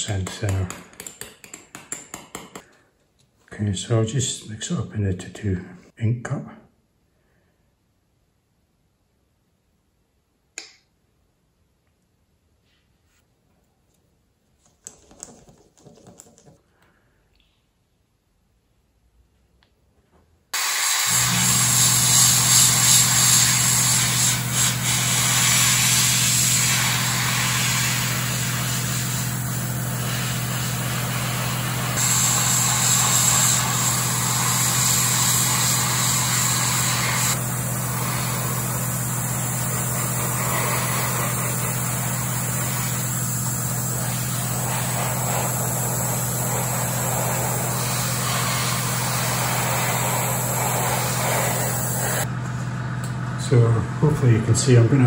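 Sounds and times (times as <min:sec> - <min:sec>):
airbrush spraying hiss: 0:20.6 - 0:52.3
steady low hum: 0:26.3 - 0:55.0.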